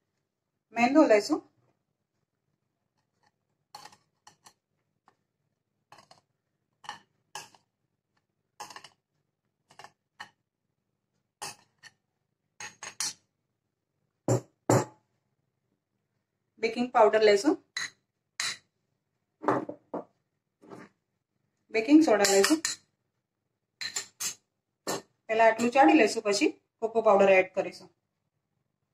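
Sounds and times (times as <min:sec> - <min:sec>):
spoon clinking against glass bowl: 0:17.8 - 0:18.6, 0:22.2 - 0:22.8.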